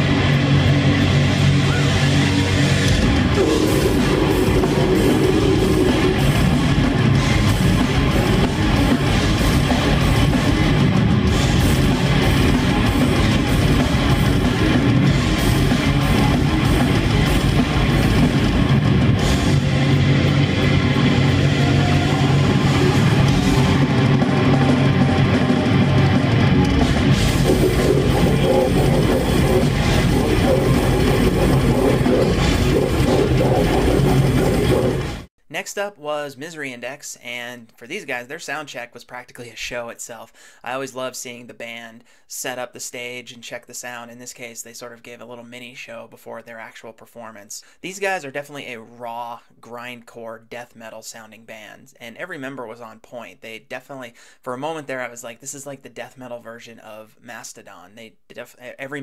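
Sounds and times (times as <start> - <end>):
death metal band playing live: 0.0 - 35.3.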